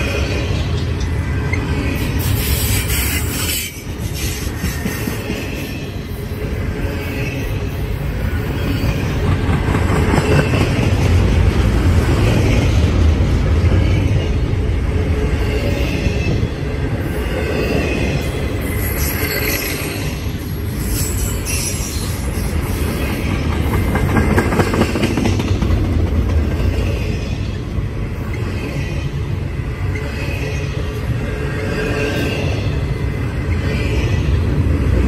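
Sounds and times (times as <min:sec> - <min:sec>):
freight train wheels rumbling on rails: 0:00.0 - 0:35.0.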